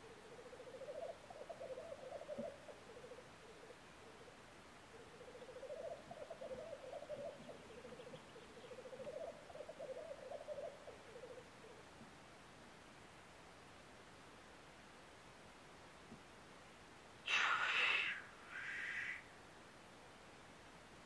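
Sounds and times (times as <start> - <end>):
black grouse bubbling cooing: 0.0 - 11.8, 17.3 - 19.2.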